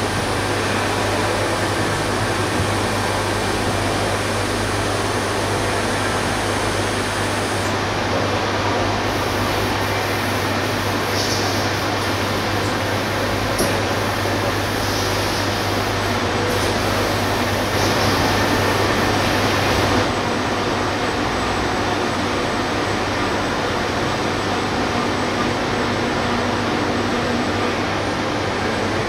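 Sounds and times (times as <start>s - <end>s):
cnc machine humming: 0.0s - 29.0s.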